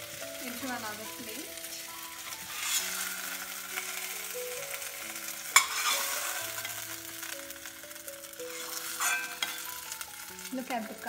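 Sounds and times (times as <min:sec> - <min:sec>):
hot oil sizzling in a pan: 0:00.0 - 0:11.0
spoon scraping a pan: 0:01.9 - 0:04.2, 0:04.8 - 0:07.2, 0:08.3 - 0:10.2.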